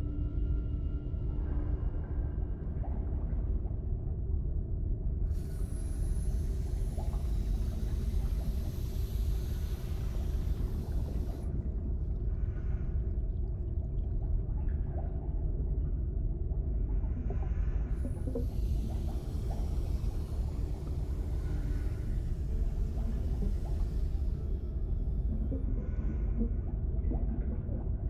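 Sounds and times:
steady low rumble: 0:00.0 - 0:28.0
hiss: 0:05.4 - 0:11.5, 0:18.0 - 0:24.6.

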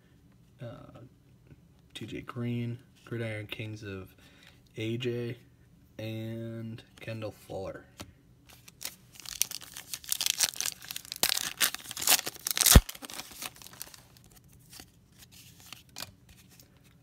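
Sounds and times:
foil wrapper crinkling: 0:08.5 - 0:14.8
cards rustling: 0:08.5 - 0:17.0.

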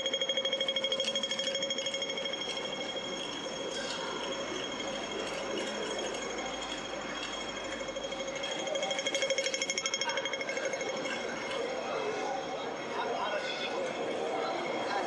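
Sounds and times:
rapid electronic ticking: 0:00.0 - 0:11.8
street noise: 0:00.0 - 0:15.0.

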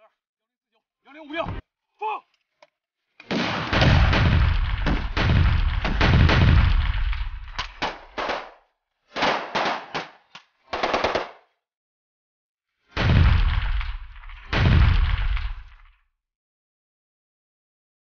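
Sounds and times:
automatic gunfire: 0:03.3 - 0:08.6, 0:09.2 - 0:11.5
deep rumble: 0:03.8 - 0:07.7.

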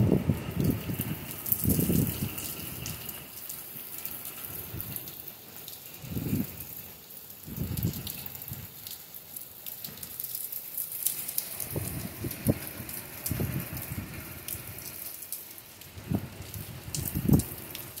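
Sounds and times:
wind gusts buffeting microphone: 0:00.0 - 0:03.3, 0:04.5 - 0:05.2, 0:05.9 - 0:06.8, 0:07.4 - 0:08.8, 0:11.6 - 0:14.9, 0:15.9 - 0:17.8
close raindrops ticking: 0:00.0 - 0:18.0
heavy rain falling on street: 0:00.0 - 0:18.0.

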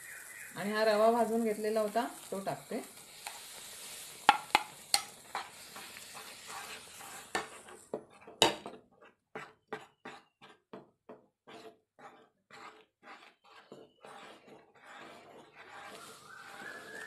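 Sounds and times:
semolina hissing in boiling water: 0:00.0 - 0:07.8, 0:15.7 - 0:17.0
wooden spatula stirring thick mixture: 0:02.9 - 0:17.0
sharp knocks against pan: 0:04.3 - 0:05.1.

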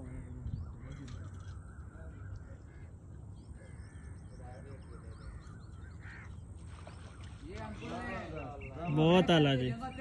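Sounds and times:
faint bird chirps: 0:00.0 - 0:10.0
crows cawing: 0:03.6 - 0:04.4, 0:05.1 - 0:06.5.

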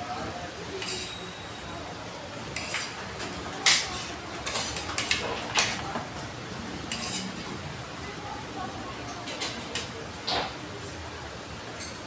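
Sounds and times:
spoon clinking on plates: 0:00.8 - 0:01.5.

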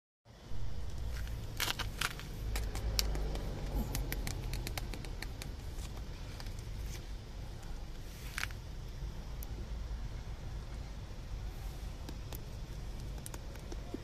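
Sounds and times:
steady low rumble: 0:00.3 - 0:14.0
plastic tub crackling and clicking: 0:01.6 - 0:06.6, 0:12.0 - 0:14.0.

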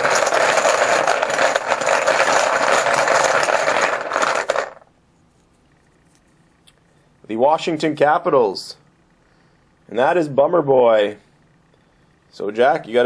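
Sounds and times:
poker chips rattling in container: 0:00.0 - 0:04.8.

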